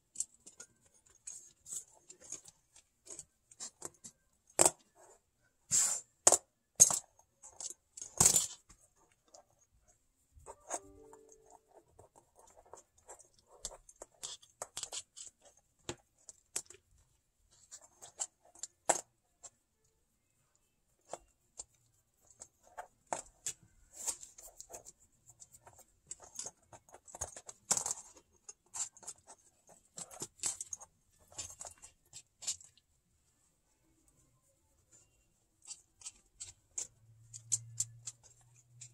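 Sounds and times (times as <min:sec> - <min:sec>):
kitten claws scratching and clicking: 0:00.0 - 0:05.1, 0:11.5 - 0:19.6, 0:21.0 - 0:32.9, 0:35.6 - 0:38.9.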